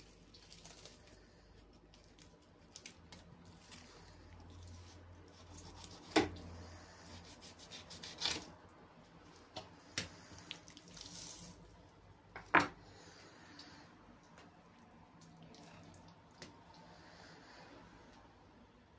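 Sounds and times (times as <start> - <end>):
knife scraping fish: 4.5 - 8.5.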